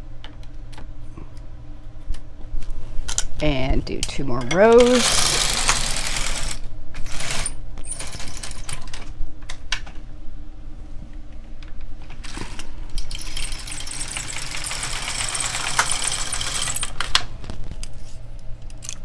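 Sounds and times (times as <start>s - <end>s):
knitting machine carriage clacking: 13.1s - 17.1s.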